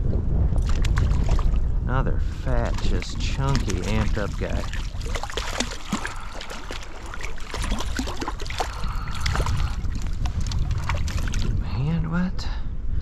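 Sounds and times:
wind buffeting microphone: 0.0 - 13.0
fish thrashing and splashing: 0.6 - 1.7, 2.5 - 11.6
running stream water: 0.6 - 11.6.

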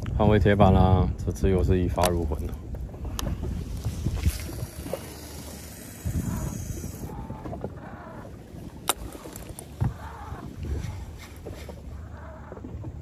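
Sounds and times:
low wind: 0.0 - 13.0
water around boat: 0.0 - 13.0
sharp clicks: 8.8 - 9.7.

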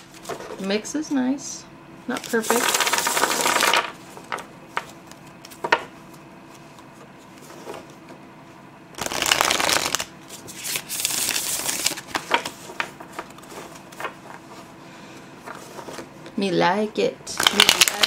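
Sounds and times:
cards being riffle-shuffled: 2.2 - 5.8, 9.0 - 14.6, 17.4 - 18.0.

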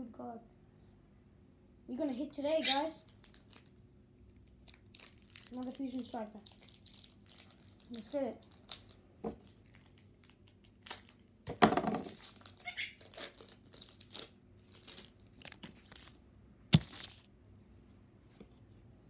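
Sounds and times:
foil wrapper crinkling and tearing: 3.0 - 11.3, 12.0 - 17.3.

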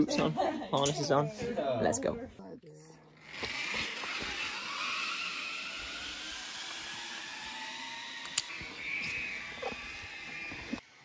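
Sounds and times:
zip-line pulleys whirring: 3.2 - 11.0.

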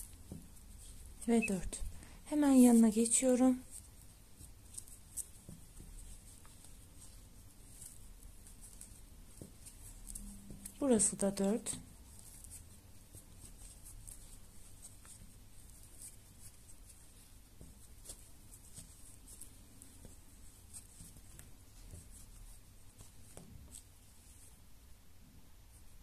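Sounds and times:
crochet hook scratching yarn: 0.0 - 24.6.

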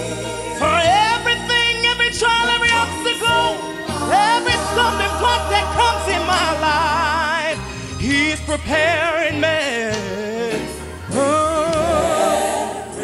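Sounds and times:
man singing gospel: 0.0 - 12.3.

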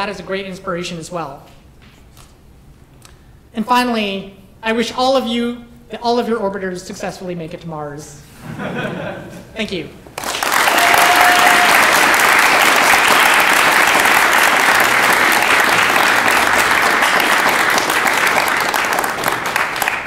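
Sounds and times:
audience applauding: 10.2 - 20.0.

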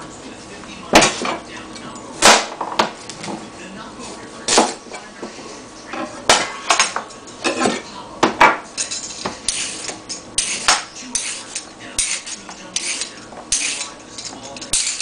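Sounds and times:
peeler scraping carrot: 9.5 - 14.0.

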